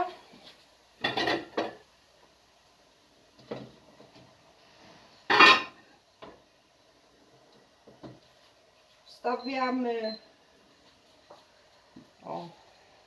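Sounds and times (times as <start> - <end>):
pots and pans clanking: 1.0 - 1.8, 5.3 - 5.8.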